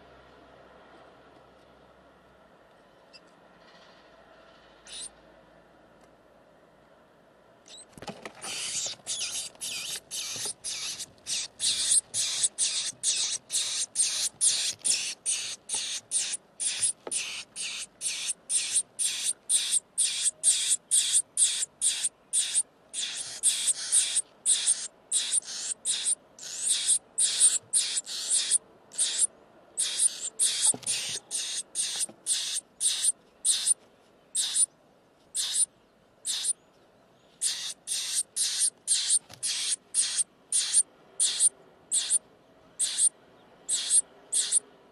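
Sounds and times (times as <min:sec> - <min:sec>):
nestlings begging screams: 0:04.9 - 0:05.1, 0:08.4 - 0:33.8, 0:34.4 - 0:34.7, 0:35.4 - 0:36.6, 0:37.4 - 0:42.2, 0:42.8 - 0:43.1, 0:43.7 - 0:44.7.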